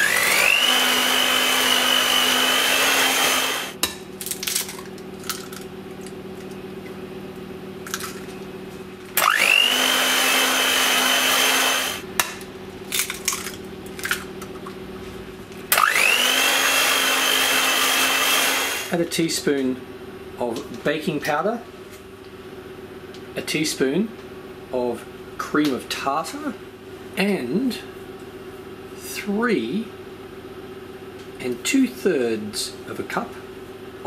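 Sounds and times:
electric hand mixer whirring: 0.0s - 3.8s, 9.2s - 12.1s, 15.7s - 19.0s.

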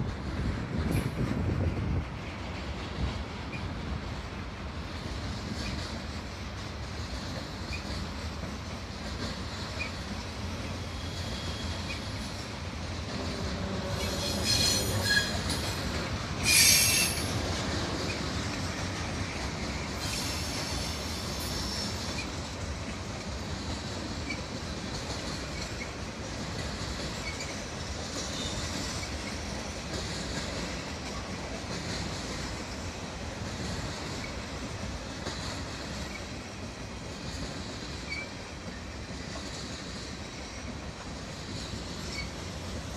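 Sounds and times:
train wheels rumbling on rail: 0.0s - 42.9s
high-pitched wheel squeal: 14.0s - 15.6s, 16.4s - 17.3s.

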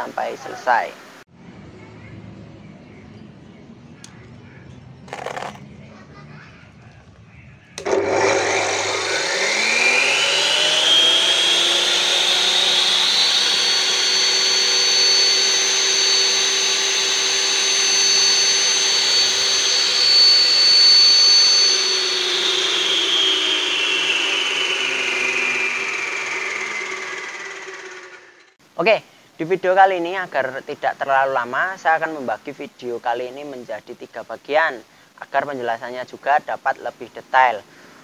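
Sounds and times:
concrete cutter motor whining: 5.1s - 5.6s, 7.7s - 28.6s.

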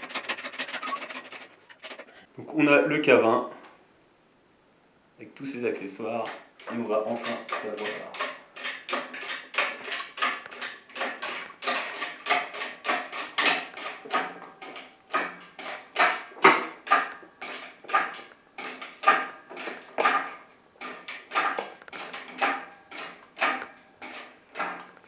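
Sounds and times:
manual hoist metallic clinks: 6.2s - 25.0s.

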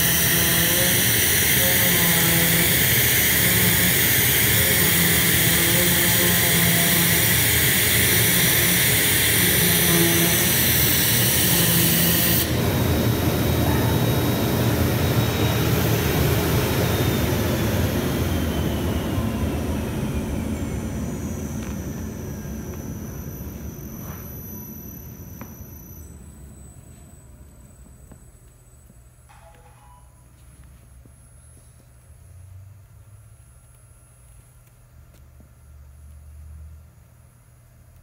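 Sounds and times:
vacuum blower hissing: 0.0s - 26.0s
blower winding down whine: 0.0s - 29.0s.

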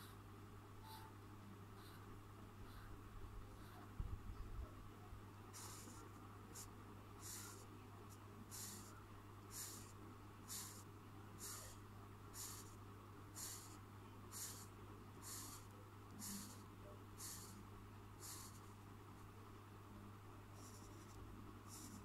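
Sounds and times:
steady low hum: 0.0s - 22.0s
marker scratching on paper: 5.6s - 6.0s, 6.6s - 7.7s, 8.5s - 9.9s, 10.5s - 10.8s, 11.4s - 11.8s, 12.4s - 12.8s, 13.4s - 16.6s, 17.2s - 17.6s, 18.2s - 18.7s, 20.6s - 22.0s.

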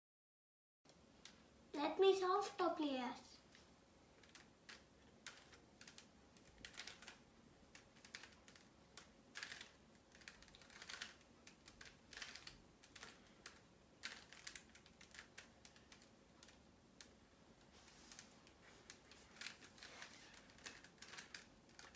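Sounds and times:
puzzle cube clicking: 4.2s - 17.2s, 18.1s - 21.9s.

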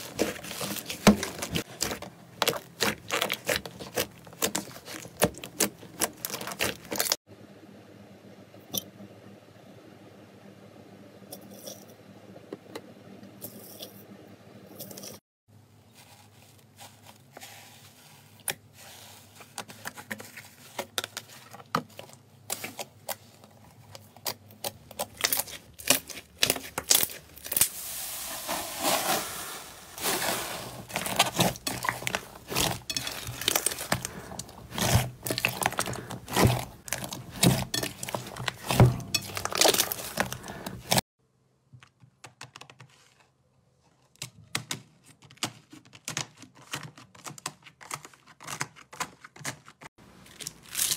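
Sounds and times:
hands squishing slime: 30.0s - 41.0s.

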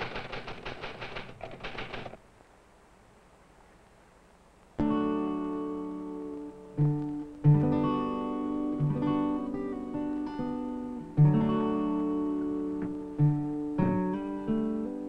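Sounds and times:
acoustic guitar chords: 4.8s - 15.0s.

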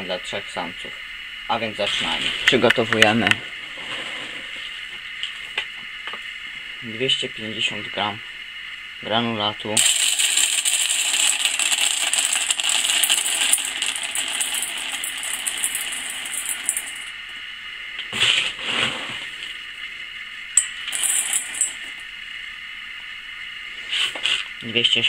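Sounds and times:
pellets rattling into metal bowl: 9.8s - 17.2s, 20.6s - 22.0s.

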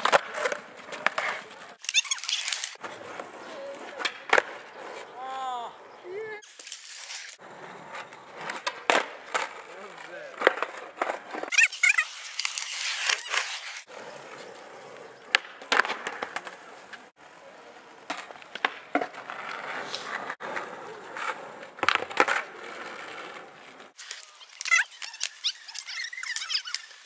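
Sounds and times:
skateboard wheels rolling on pavement: 0.0s - 27.0s
skateboard clacks: 7.9s - 11.5s, 14.3s - 17.0s, 18.0s - 27.0s.

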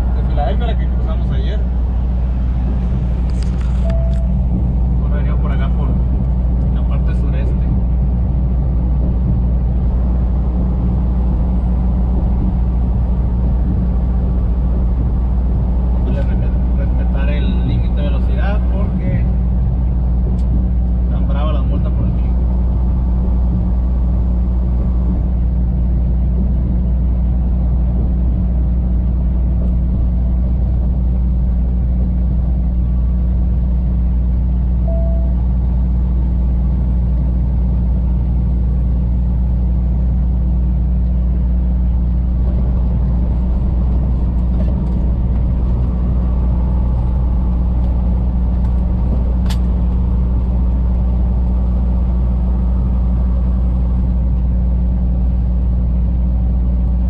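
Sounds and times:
road noise: 0.0s - 57.0s
truck diesel engine drone: 0.0s - 57.0s
short beep: 3.8s - 4.4s, 34.8s - 35.5s.

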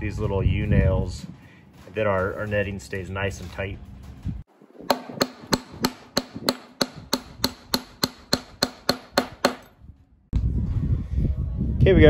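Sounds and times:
hammer driving nails into wood: 4.9s - 9.7s.

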